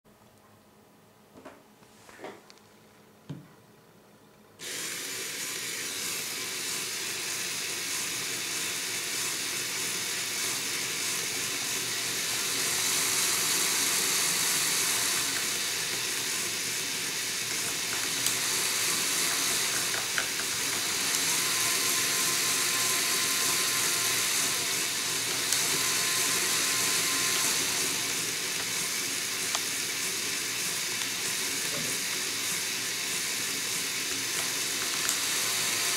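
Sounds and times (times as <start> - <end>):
motors and plastic gears whirring: 4.6 - 35.9.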